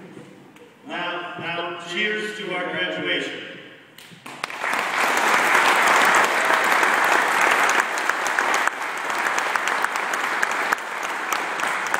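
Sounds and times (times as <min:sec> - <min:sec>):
audience applauding: 0:04.2 - 0:11.9.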